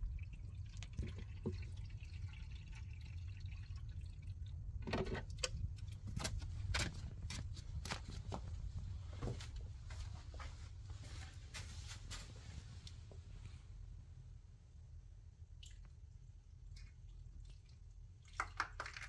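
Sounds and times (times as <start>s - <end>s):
water trickling into jug: 0.0s - 5.9s
footsteps in sandals: 6.2s - 12.8s.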